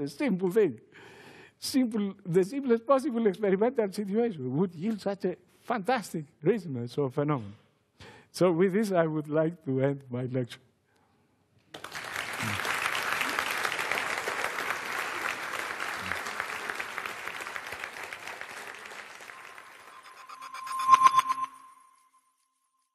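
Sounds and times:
audience applauding: 11.7s - 20.2s
electronic jingle: 19.4s - 22.2s.

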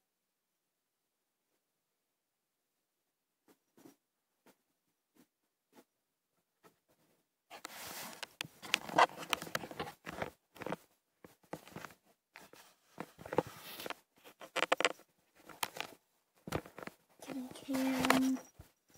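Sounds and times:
rustling against camera: 6.6s - 18.8s.

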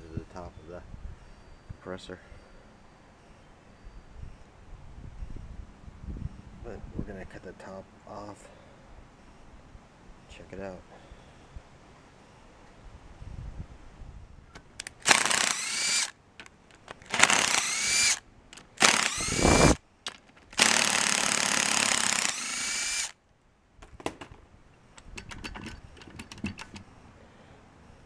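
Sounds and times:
power tool cutting steel: 15.0s - 16.1s, 17.1s - 18.2s, 18.8s - 19.8s, 20.6s - 23.2s
light clicks and knocks: 25.0s - 26.9s.

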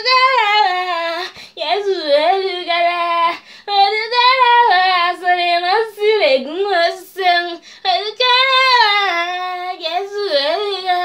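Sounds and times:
woman singing unaccompanied: 0.0s - 11.0s
singer breathing: 1.3s - 1.6s, 3.4s - 3.7s, 7.6s - 7.9s.

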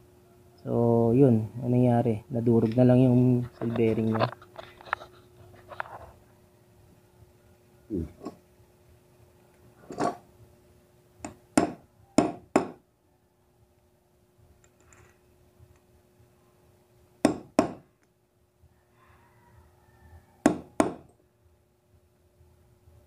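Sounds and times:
hammer striking metal punch: 11.3s - 12.8s, 17.2s - 17.8s, 20.5s - 21.1s.

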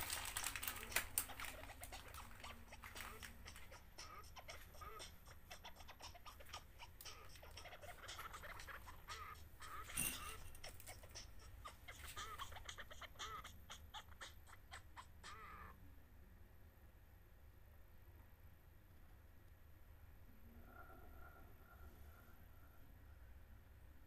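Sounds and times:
faint bird chirps: 0.7s - 15.8s.

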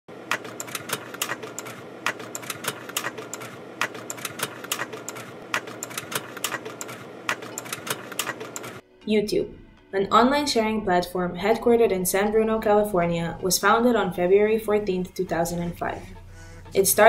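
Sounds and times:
irregular clicking: 0.3s - 8.8s.

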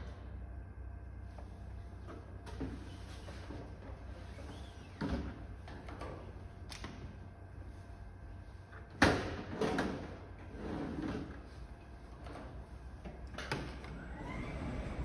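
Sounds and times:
steady low machine hum: 0.0s - 15.0s.

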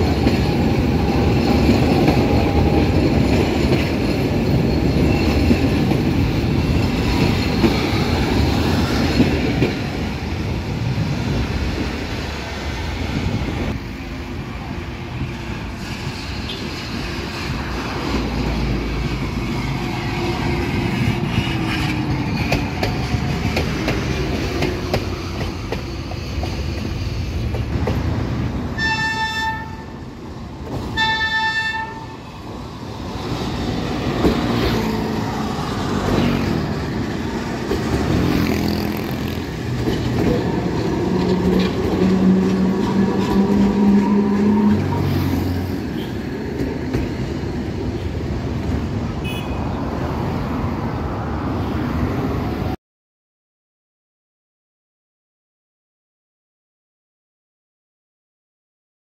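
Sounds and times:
tram wheels rumbling on rail: 0.0s - 52.8s
tram horn toots: 28.8s - 30.1s, 30.9s - 32.4s, 40.8s - 46.3s, 49.2s - 49.8s.

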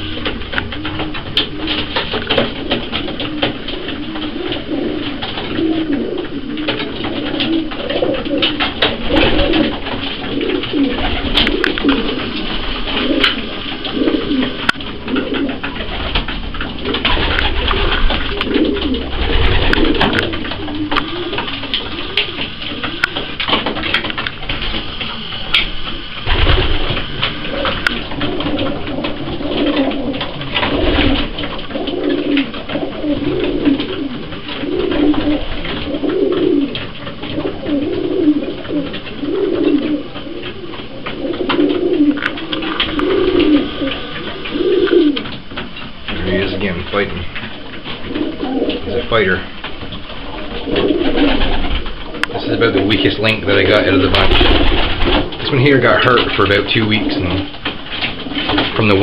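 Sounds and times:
beaks pecking grain on wood: 0.0s - 59.0s
pigeons cooing: 0.0s - 59.0s.

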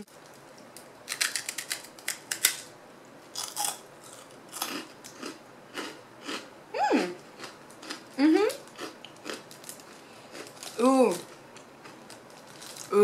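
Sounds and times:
rice cracker crunching: 1.1s - 2.7s, 3.4s - 6.4s, 7.4s - 13.0s.

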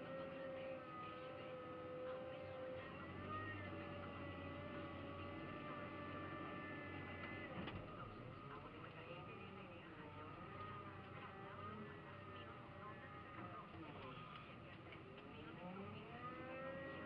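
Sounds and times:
high hydraulic whines: 0.0s - 8.6s
wheel loader diesel engine: 0.0s - 17.0s.

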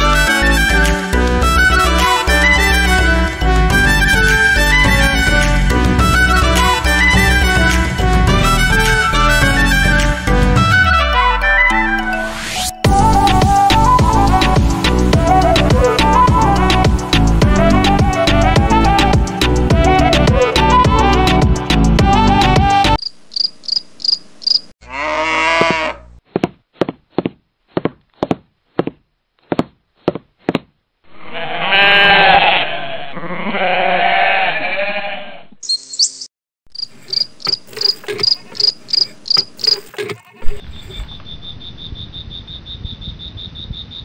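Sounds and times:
cricket-like chirps: 23.0s - 24.7s, 35.6s - 40.0s, 40.6s - 44.0s
bleating calls: 24.8s - 26.1s, 31.1s - 35.6s.

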